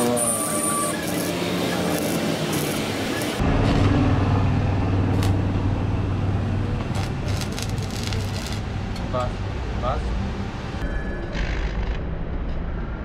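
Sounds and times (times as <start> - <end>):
welding arc crackles: 0.0 - 3.8, 5.1 - 5.6, 6.8 - 8.7
welding machine hum: 0.0 - 9.0.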